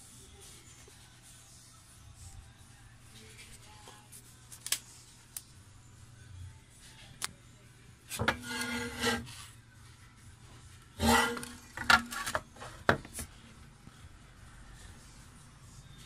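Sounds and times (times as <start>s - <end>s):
metal case scraping with squeal: 8.2s - 9.3s, 11.0s - 12.3s.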